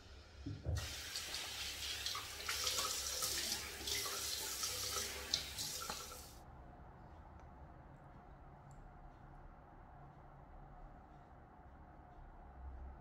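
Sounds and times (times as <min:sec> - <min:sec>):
tap water running into a sink: 0:00.4 - 0:06.4.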